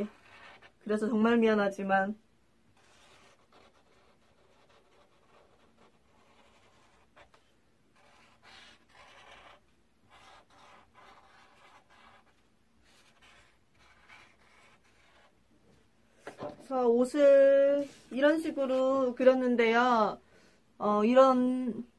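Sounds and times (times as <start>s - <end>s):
marker drawing on paper: 0.0s - 0.8s, 2.8s - 15.4s.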